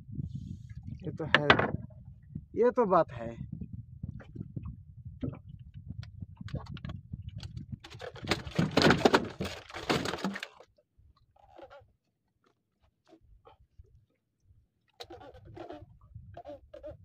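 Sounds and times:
fish thrashing in boat hold: 7.8 - 11.9, 14.9 - 17.0.

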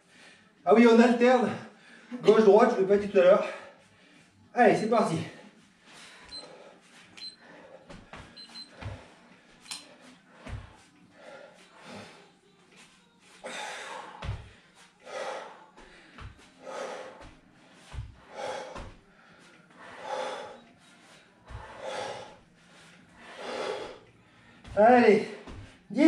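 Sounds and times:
person breathing heavily: 5.3 - 12.4, 13.4 - 25.9.

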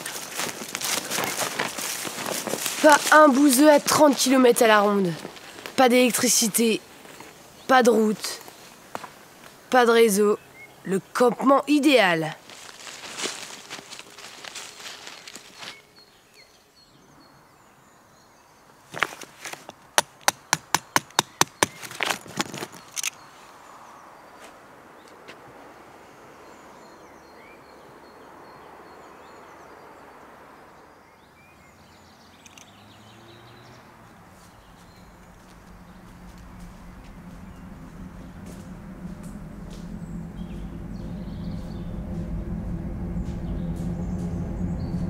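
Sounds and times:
faint insects: 0.0 - 45.0.

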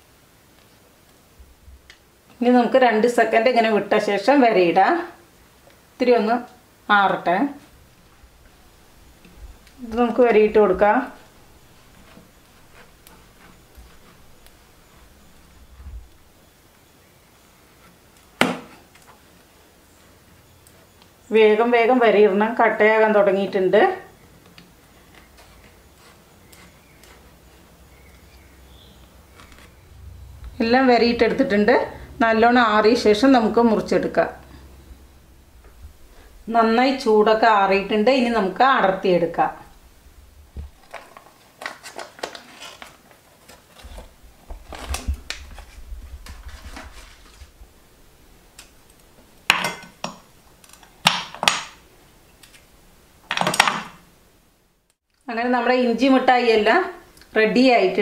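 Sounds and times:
low steady hum: 0.0 - 41.8
knife scratching candy: 11.1 - 15.7, 25.2 - 27.5
candy crackling and paper rustling: 40.8 - 47.6.

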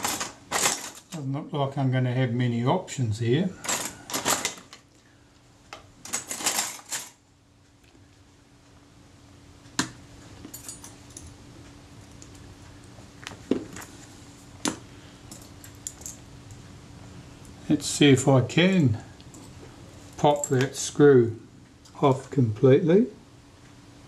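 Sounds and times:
metal tools clicking and clattering: 0.0 - 1.2, 6.1 - 7.2.

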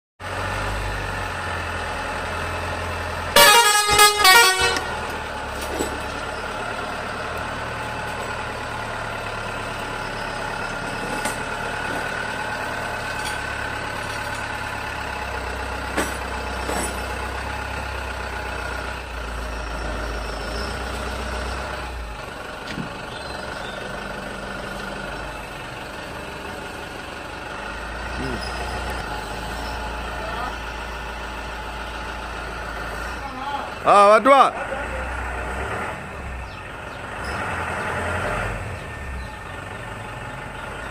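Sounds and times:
engine idling rumble: 0.2 - 37.9, 38.5 - 40.9
vehicle air horn blasts: 3.3 - 5.1.

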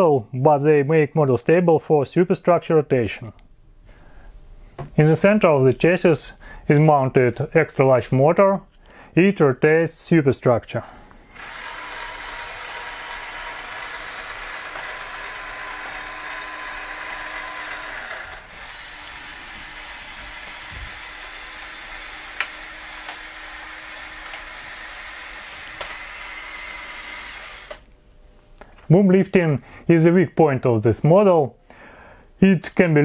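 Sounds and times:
toy motor whirring: 11.3 - 27.8.

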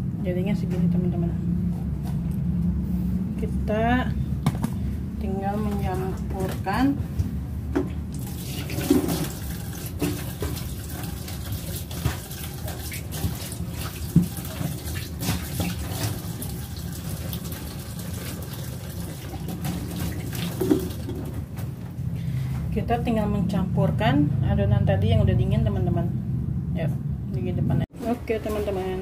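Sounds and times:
tap water splashing into sink: 7.8 - 21.4.

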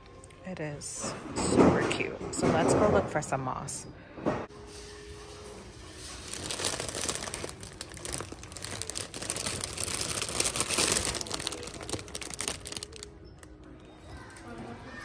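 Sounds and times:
plastic bag crinkling: 6.0 - 13.5.

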